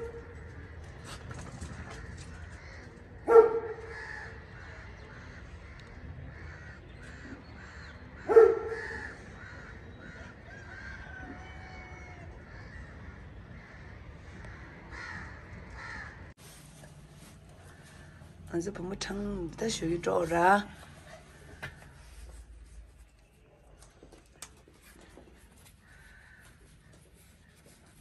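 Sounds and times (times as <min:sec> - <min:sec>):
low city hum: 0:00.0 - 0:28.0
crow cawing: 0:03.7 - 0:11.6, 0:12.5 - 0:16.3, 0:25.8 - 0:27.0.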